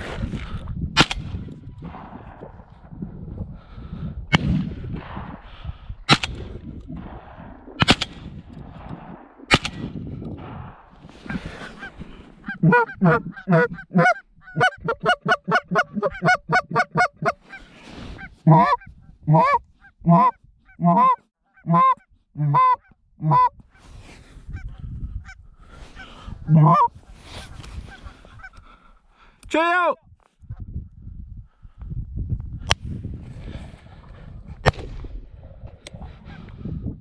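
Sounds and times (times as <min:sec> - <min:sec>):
goose honking: 0:11.7 - 0:23.5, 0:26.0 - 0:26.9.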